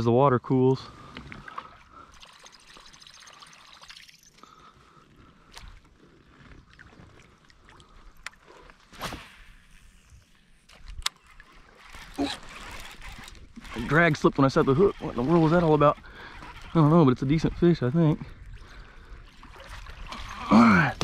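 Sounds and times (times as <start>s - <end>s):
fishing reel clicks: 10.7s - 18.4s.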